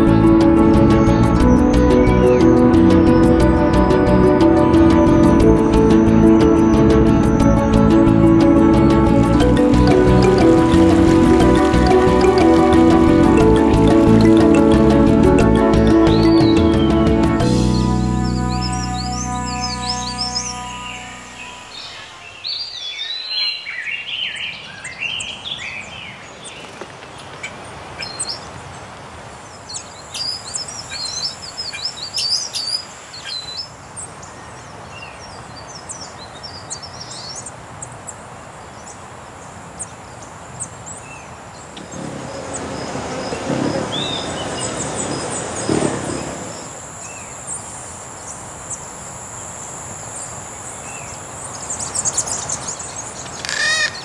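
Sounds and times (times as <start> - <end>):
birds chirping and whistling: 0.2 - 26.2, 41.8 - 47.6, 50.9 - 54.0
rushing noise: 0.7 - 22.8, 41.8 - 47.2.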